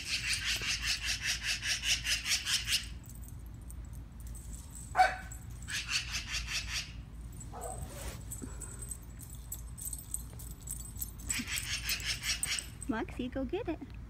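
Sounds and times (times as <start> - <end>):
magpie chattering: 0.0 - 2.8, 11.3 - 12.7
dog barking: 5.0 - 6.7, 7.5 - 8.2.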